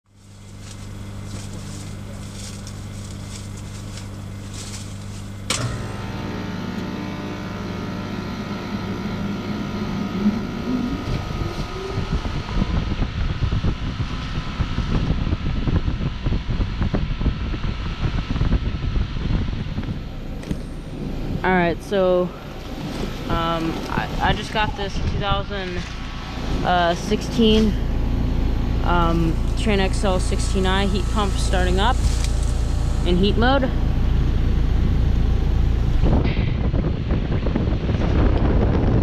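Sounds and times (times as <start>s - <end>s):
low hum: 0.0s - 39.0s
compressor rising tone: 0.1s - 39.0s
fluttering fan air rush: 0.1s - 39.0s
sharp click: 5.5s - 5.8s.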